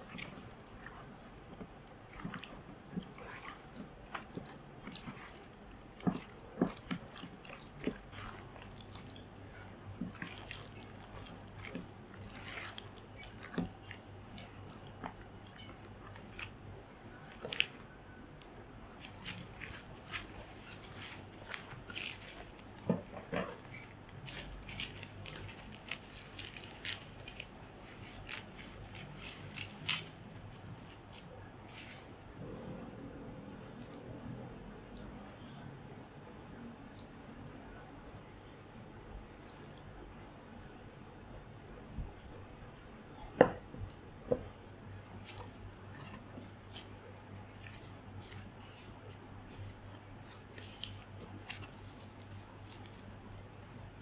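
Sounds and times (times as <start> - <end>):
spoon stirring in plastic bowl: 0.0 - 16.6, 19.0 - 29.8.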